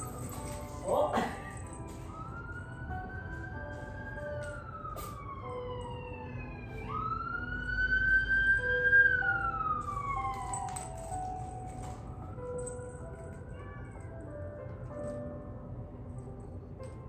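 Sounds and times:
emergency siren wailing: 0.0 - 12.9.

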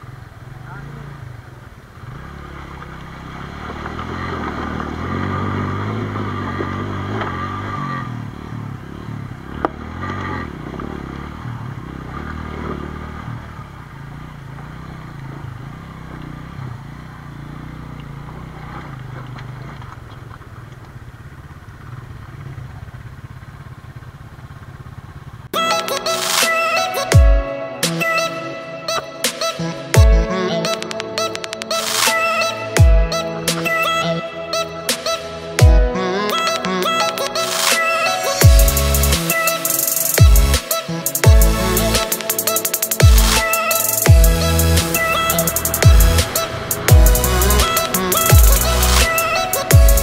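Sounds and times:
motorcycle engine running: 0.0 - 25.6, 38.4 - 50.0.

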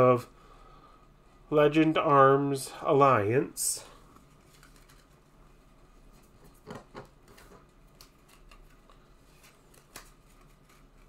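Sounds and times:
cards tapping and rustling: 6.2 - 11.0.

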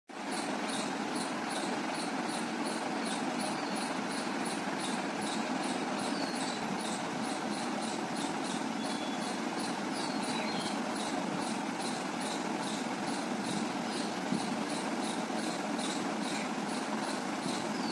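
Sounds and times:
bird whistles: 8.8 - 9.4.

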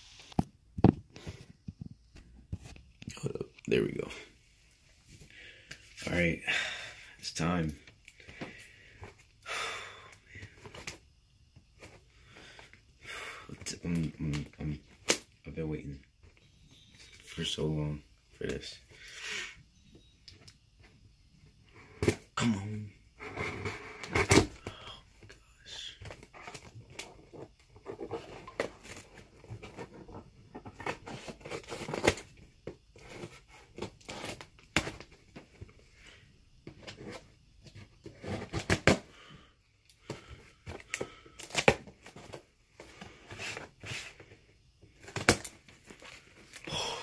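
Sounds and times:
cardboard scraping and rustling: 26.1 - 32.3, 36.7 - 39.0.

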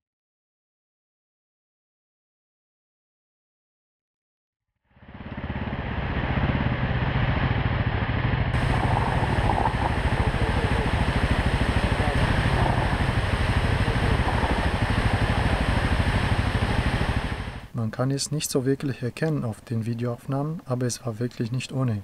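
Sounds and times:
motorcycle engine under load: 4.9 - 17.7
tires on loose gravel: 5.1 - 17.7.

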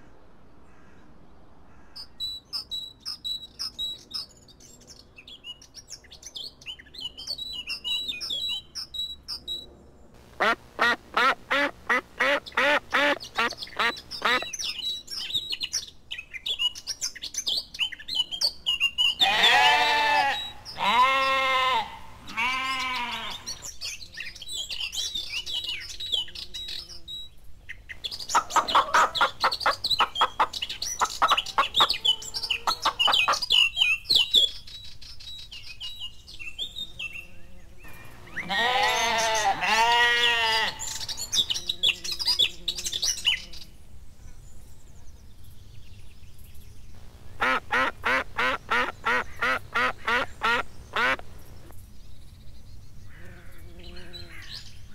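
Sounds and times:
birds chirping: 1.7 - 54.9
sheep or goats bleating: 19.2 - 23.6, 37.9 - 41.0.

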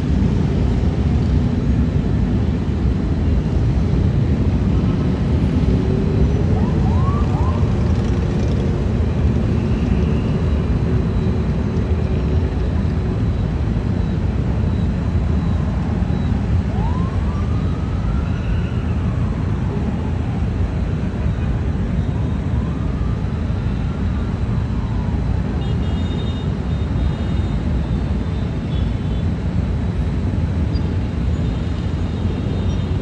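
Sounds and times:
motorcycles rumbling: 0.0 - 16.0
city traffic: 0.0 - 33.0
faint siren wailing: 3.9 - 28.3.

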